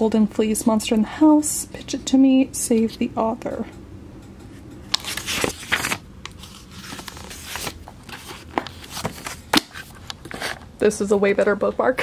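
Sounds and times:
book pages turning: 4.8 - 10.6.

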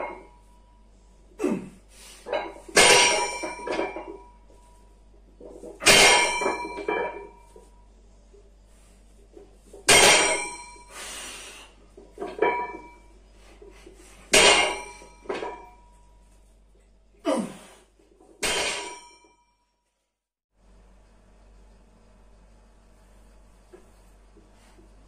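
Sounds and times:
weight plates clanging: 2.3 - 7.7, 9.6 - 10.9, 11.9 - 13.2, 14.3 - 16.0, 18.3 - 19.2.

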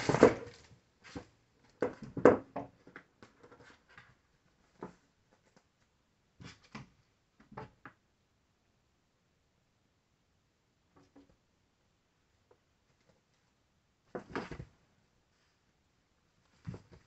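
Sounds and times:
kitten bumping and scrabbling: 14.1 - 14.8, 16.5 - 17.0.

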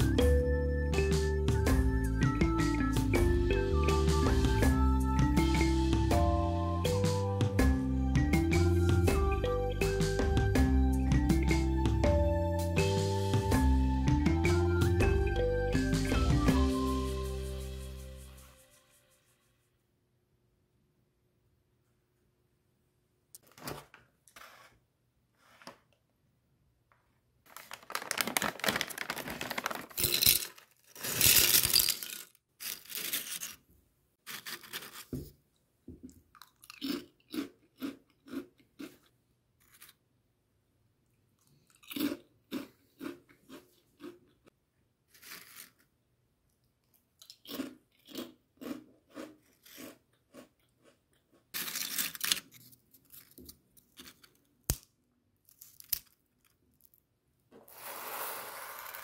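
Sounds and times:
crunching chips: 27.5 - 33.6, 36.4 - 40.0, 46.9 - 56.9
foil pouch crinkling: 27.5 - 33.6.

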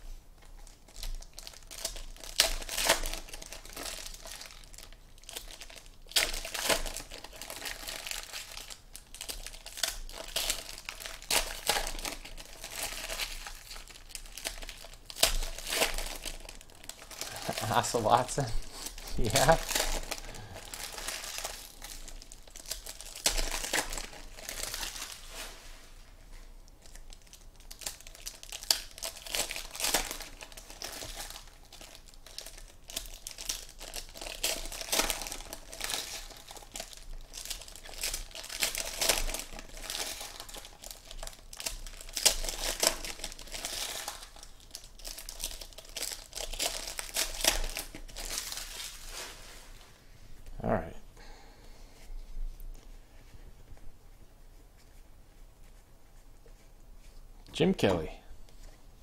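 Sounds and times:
foil wrappers crinkling and tearing: 0.4 - 50.0.

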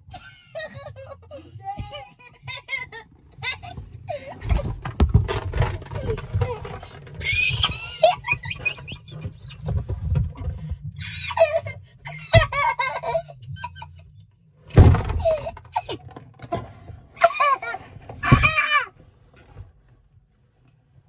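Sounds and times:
person squealing laughter: 11.0 - 13.8
loud thumps: 14.7 - 15.8.

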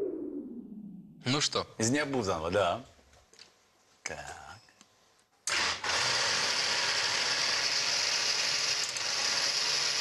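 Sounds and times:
blender running: 5.5 - 10.0.

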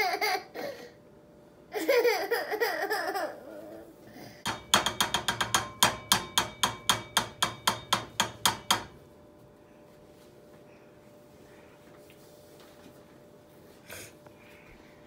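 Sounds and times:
metal spoon tapping pan rim: 4.5 - 9.0.

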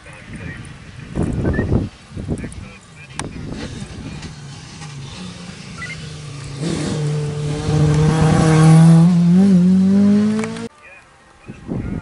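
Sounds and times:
rally car engine passing: 3.1 - 10.7.

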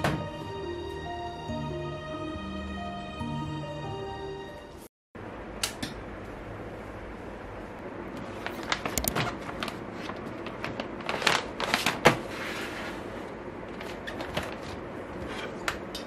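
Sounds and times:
plastic document sleeves rustling: 8.2 - 14.9.

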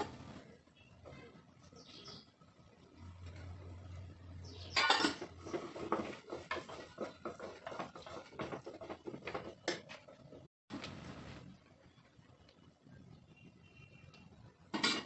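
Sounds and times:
spoon scraping in pressure cooker: 4.6 - 10.4.

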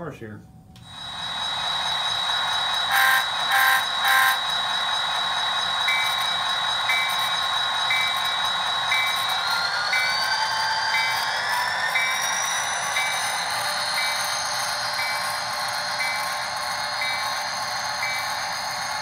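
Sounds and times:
high-pitched engine whine: 0.8 - 19.0
horn blasts: 2.9 - 4.4.

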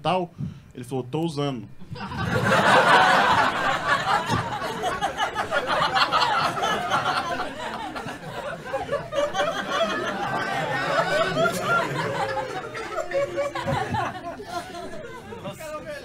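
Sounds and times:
crowd laughing: 1.8 - 16.0
people on stage laughing: 1.9 - 15.9.

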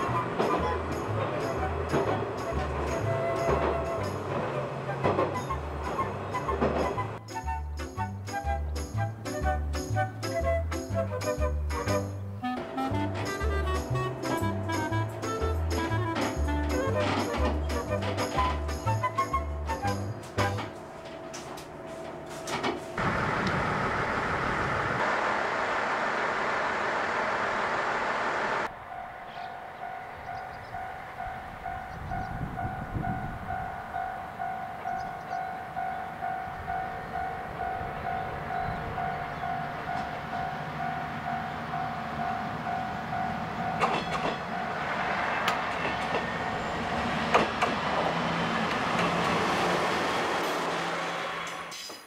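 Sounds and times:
level-crossing warning bell ringing: 0.0 - 4.6, 12.6 - 23.0, 28.6 - 46.9
wheels clicking over rail joints: 0.0 - 25.2, 26.3 - 52.0
diesel railcar engine humming: 0.0 - 52.0.

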